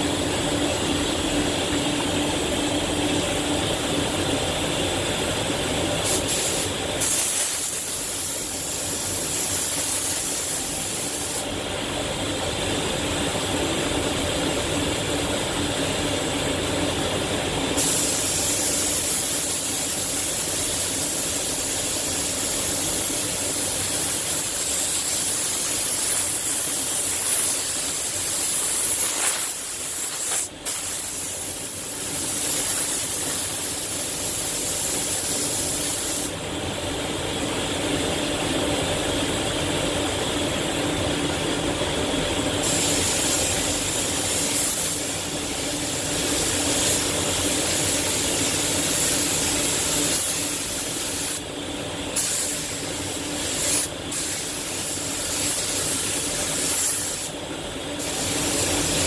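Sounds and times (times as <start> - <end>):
spray gun hissing: 6.0 - 11.5, 17.8 - 36.3, 42.6 - 51.5, 52.1 - 57.4, 58.0 - 59.0.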